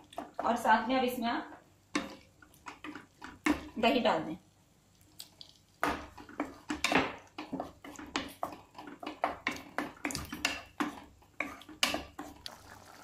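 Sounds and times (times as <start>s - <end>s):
wooden spatula scraping pan: 6.0s - 12.4s.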